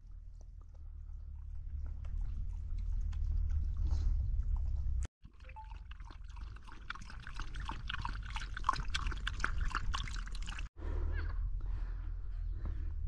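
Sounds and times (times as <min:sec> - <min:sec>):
dog lapping water: 0:05.3 - 0:10.7.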